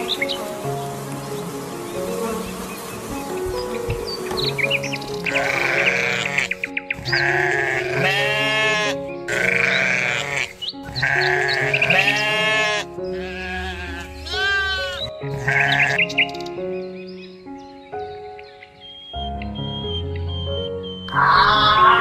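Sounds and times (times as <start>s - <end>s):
background music: 0.0s - 22.0s
animal wavering cry: 5.3s - 16.1s, 21.1s - 22.0s.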